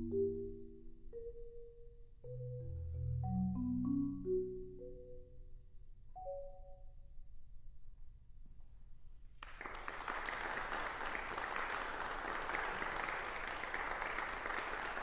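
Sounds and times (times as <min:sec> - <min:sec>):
audience applause: 0:09.4 - 0:15.0.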